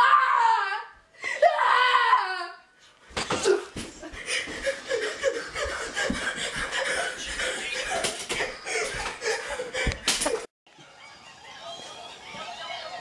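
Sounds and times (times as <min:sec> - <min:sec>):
people laughing: 0:03.9 - 0:13.0.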